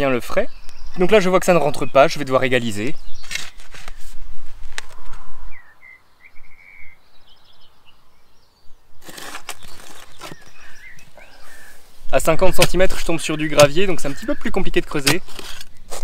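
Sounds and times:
bird chirping: 0.0s - 4.3s, 4.9s - 16.0s
spade digging into soil: 3.2s - 4.2s, 9.0s - 10.8s, 12.4s - 16.0s.

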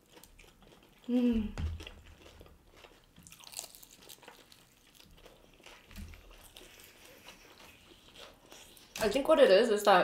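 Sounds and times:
crunching fried chicken: 0.0s - 9.3s.

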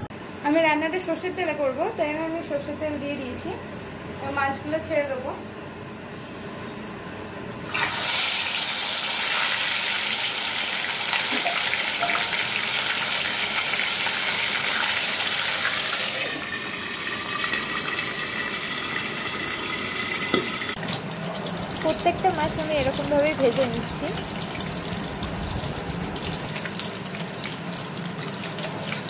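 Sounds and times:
fish sizzling in hot oil: 7.7s - 20.8s, 21.8s - 29.0s.

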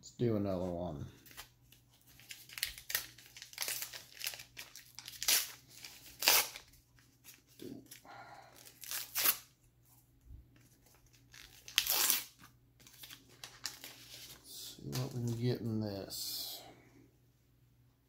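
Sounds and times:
foil card pack tearing: 1.2s - 8.0s, 8.6s - 9.5s, 11.2s - 14.4s.

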